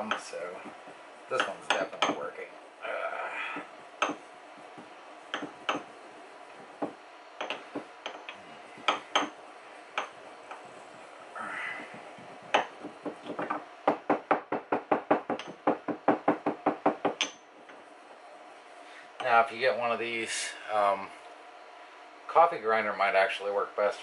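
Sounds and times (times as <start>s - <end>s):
pestle pounding in stone mortar: 11.9s - 17.3s.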